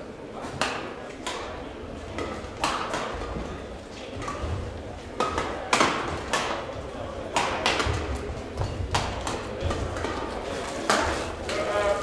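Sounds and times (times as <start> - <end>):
rackets striking shuttlecock: 0.5 - 3.5, 5.2 - 11.1.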